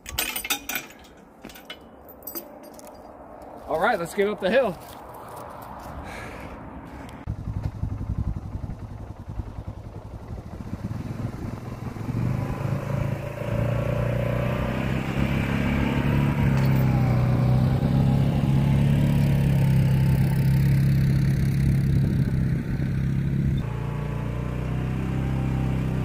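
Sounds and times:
atv engine pulling away: 7.3 - 26.0.

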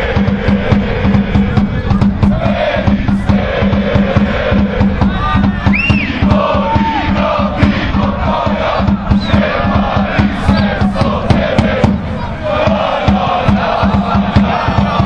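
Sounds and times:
bass drum beating: 0.0 - 15.0
crowd chanting in unison: 0.0 - 15.0.

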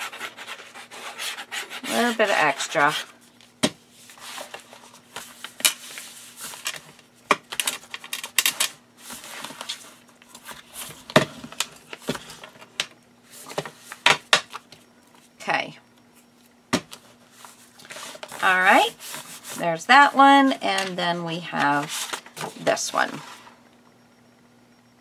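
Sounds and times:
paper rubbing and rustling: 21.6 - 22.4.

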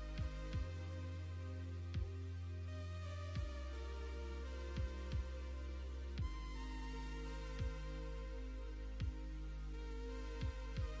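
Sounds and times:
held electronic chords: 0.0 - 11.0
deep kick drum thumping: 0.2 - 0.8, 2.0 - 2.2, 3.4 - 3.6, 4.8 - 5.4, 6.2 - 6.4, 7.6 - 7.8, 9.0 - 9.2, 10.4 - 11.0.

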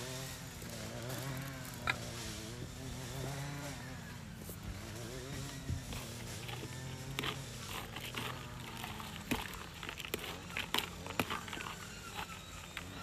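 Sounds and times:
bait grains rattling in plastic bucket: 5.2 - 13.0.

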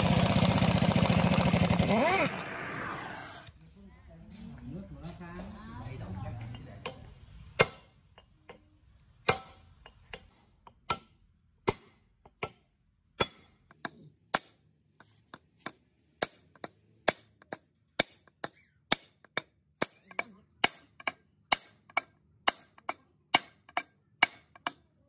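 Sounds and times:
hammer striking metal pipe: 6.6 - 8.6, 9.2 - 14.6, 15.3 - 24.8.

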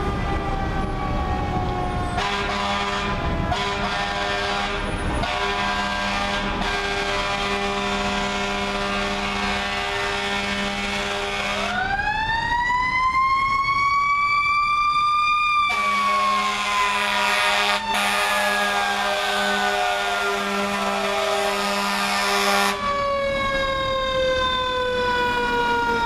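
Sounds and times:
mechanical siren wailing: 0.0 - 5.9, 6.6 - 26.0
fire engine air horns: 1.7 - 11.9, 15.6 - 26.0.

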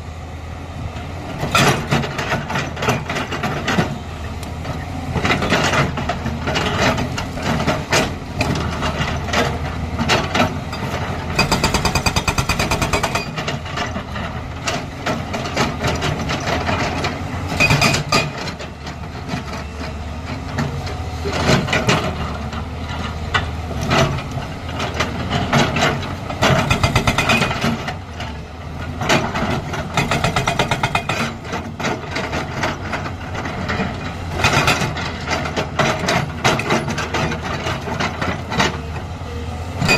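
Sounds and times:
excavator engine running: 0.0 - 39.9
hydraulic rock breaker hammering stone: 7.5 - 14.0, 17.5 - 18.5, 25.4 - 28.0, 29.0 - 32.7.

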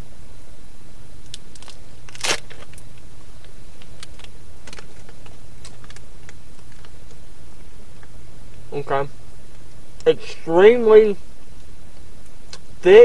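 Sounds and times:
steady low hum: 0.0 - 13.0
plastic pack crinkling: 1.3 - 7.2.

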